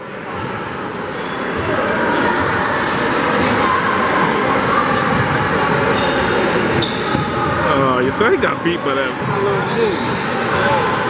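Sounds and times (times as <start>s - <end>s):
spectators talking and calling out: 0.0s - 11.0s
sneakers squeaking on hardwood court: 0.9s - 3.6s, 4.9s - 7.6s.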